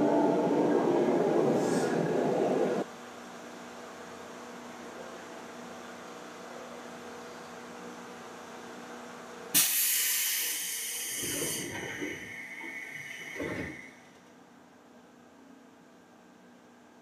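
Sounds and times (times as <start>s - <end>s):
electric train humming: 0.0s - 2.9s, 9.6s - 14.2s
compressed air hiss: 9.6s - 11.8s.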